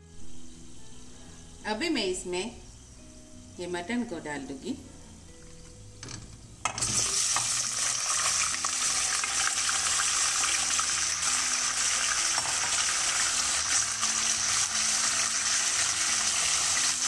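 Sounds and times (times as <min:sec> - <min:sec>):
meat sizzling in hot oil: 0:06.7 - 0:17.0.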